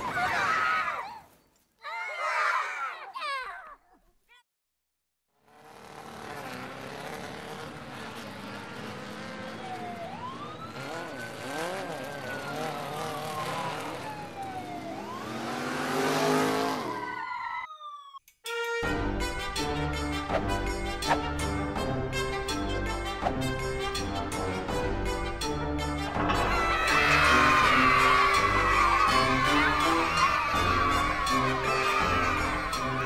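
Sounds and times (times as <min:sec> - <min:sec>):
engine hum rising and falling: 0:05.4 - 0:18.2, 0:19.8 - 0:33.0.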